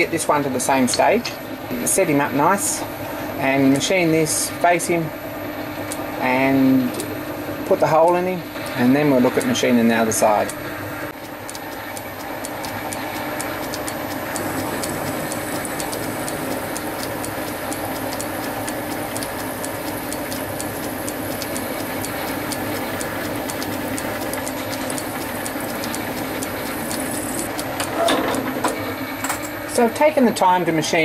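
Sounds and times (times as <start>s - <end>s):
small sharp ticks: 11.1s - 27.7s.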